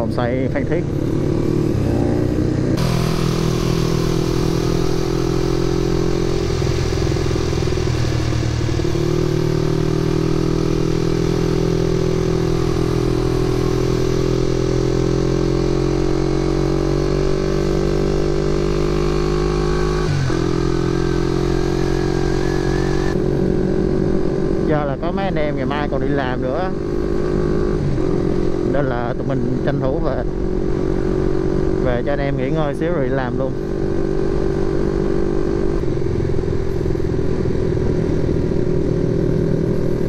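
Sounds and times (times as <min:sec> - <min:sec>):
motorcycle engine running: 0:00.0 - 0:40.0
wind rushing over microphone: 0:33.4 - 0:40.0.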